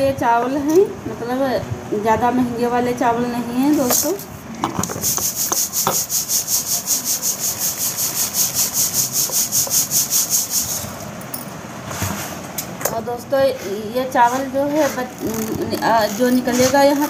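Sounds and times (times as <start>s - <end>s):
rice rattling in a metal sieve: 5.0s - 11.1s, 14.2s - 17.0s.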